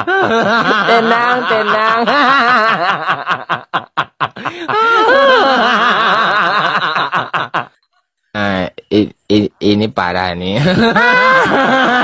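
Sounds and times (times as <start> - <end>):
person laughing: 0.0 - 7.7, 10.6 - 12.0.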